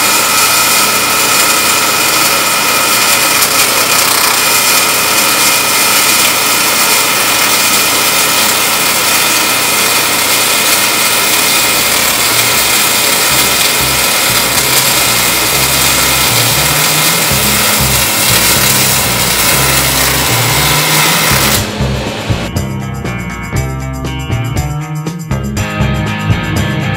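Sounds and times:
welding arc hiss and crackle: 0:00.0 - 0:22.5
background music with bass: 0:13.3 - 0:26.9.

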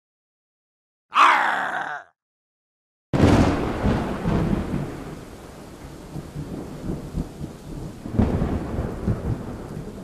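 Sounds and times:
steady rain: 0:03.2 - 0:10.0
thunder crack: 0:03.2 - 0:10.0
thunder rumble: 0:03.2 - 0:10.0.

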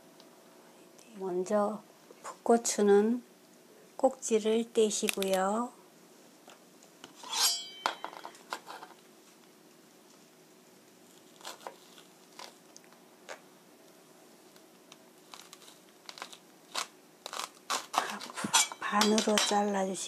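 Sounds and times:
knife metallic clink: 0:07.2 - 0:08.3, 0:18.5 - 0:19.6.

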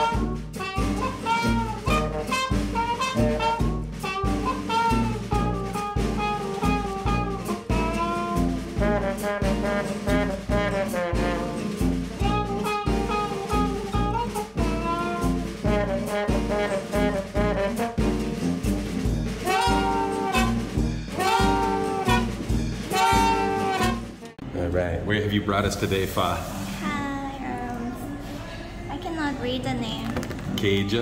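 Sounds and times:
jazzy music with horns: 0:00.0 - 0:24.4.

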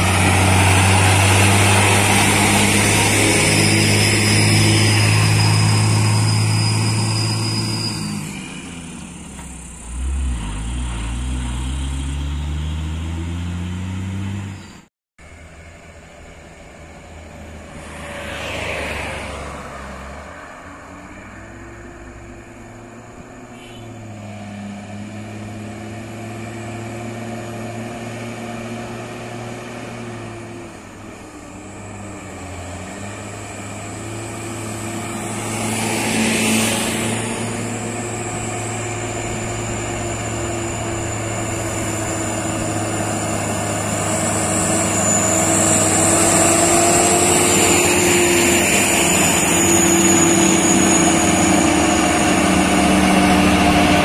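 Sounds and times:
vehicle passing: 0:00.0 - 0:06.2, 0:16.5 - 0:22.9, 0:32.7 - 0:54.0
diesel truck grinding uphill: 0:00.0 - 0:54.0
other truck engines: 0:00.0 - 0:54.0
high whine: 0:30.2 - 0:54.0.

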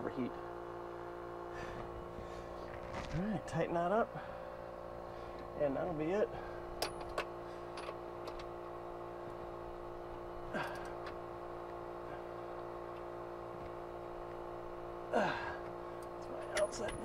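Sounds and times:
machinery humming: 0:00.0 - 0:17.0
metal clink: 0:16.4 - 0:17.0.

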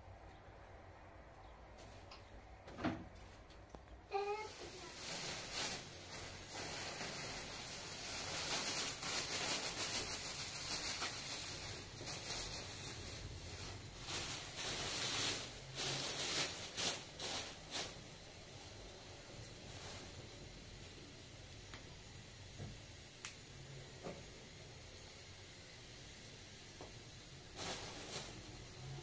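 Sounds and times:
plastic bag crinkling: 0:04.1 - 0:20.5, 0:27.5 - 0:29.0.

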